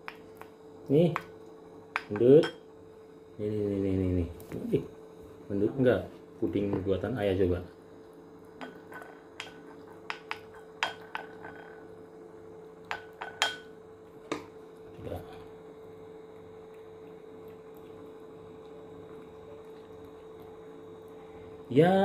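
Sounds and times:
steady electrical hum: 0.0s - 22.0s
spoon clinking on ceramic plate: 8.6s - 11.8s, 12.9s - 13.7s.

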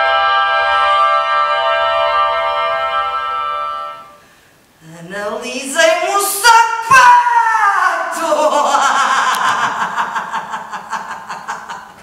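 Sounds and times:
person laughing: 7.9s - 12.0s.

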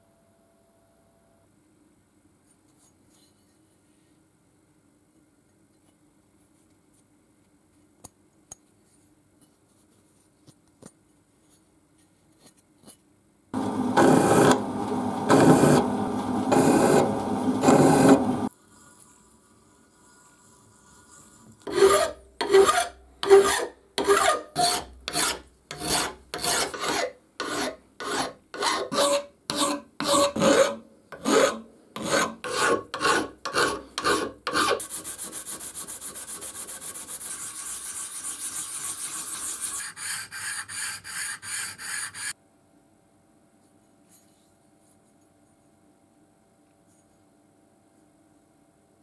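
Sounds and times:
hand file rasping on metal: 21.7s - 42.4s.

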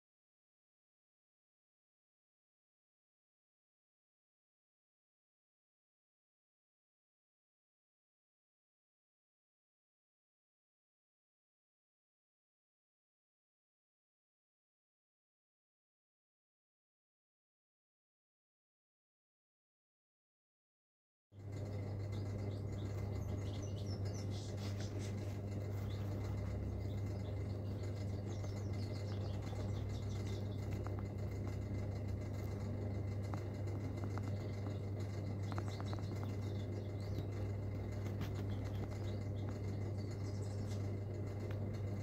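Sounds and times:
low hum: 21.4s - 42.0s
songbird chirping: 21.4s - 42.0s.

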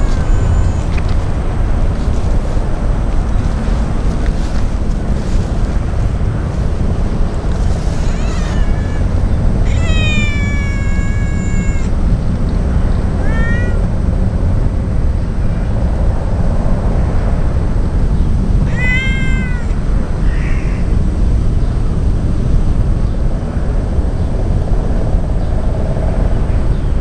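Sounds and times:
cat meowing: 0.0s - 1.3s, 6.9s - 12.0s, 13.1s - 14.1s, 18.6s - 21.1s.

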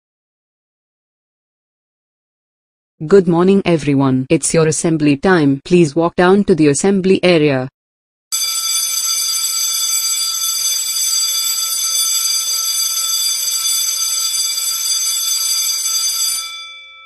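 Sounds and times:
school bell ringing: 8.3s - 17.0s.

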